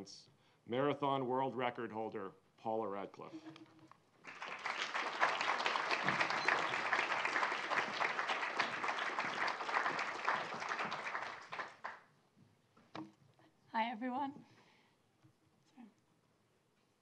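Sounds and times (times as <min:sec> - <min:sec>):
audience applauding: 0:04.2 - 0:12.1.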